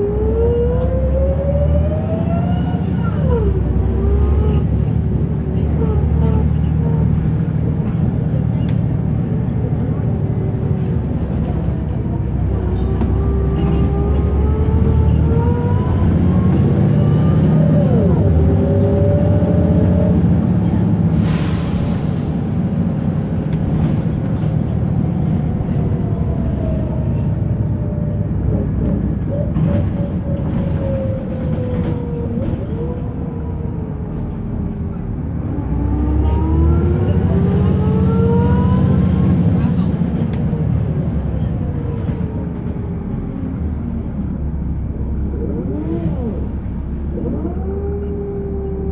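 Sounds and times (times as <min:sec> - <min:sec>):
bus engine and transmission whine: 0:00.0 - 0:48.9
hiss of air: 0:21.2 - 0:22.2.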